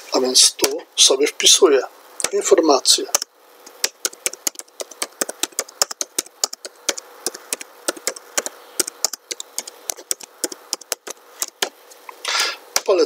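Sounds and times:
keyboard typing: 3.1s - 11.8s.

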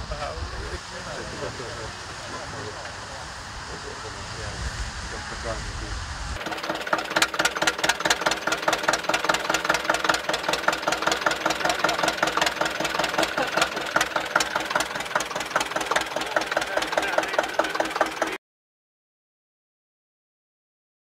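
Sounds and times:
diesel engine idling: 6.4s - 18.4s.

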